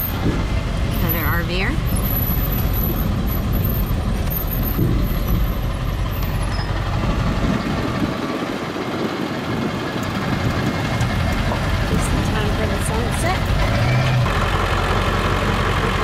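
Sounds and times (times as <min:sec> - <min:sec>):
truck engine and road rumble: 0:00.0 - 0:16.0.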